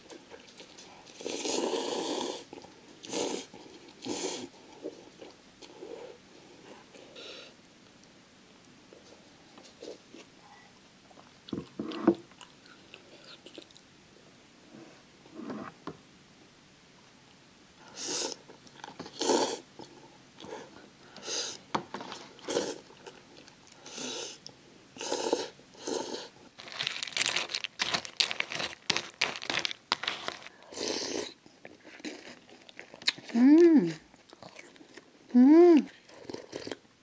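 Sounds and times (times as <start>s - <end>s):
chewing: 0.0s - 5.8s, 11.1s - 13.8s, 26.6s - 35.2s, 35.9s - 36.8s
slurping noodles: 1.2s - 4.5s, 19.1s - 19.6s, 22.4s - 22.9s, 30.0s - 31.4s.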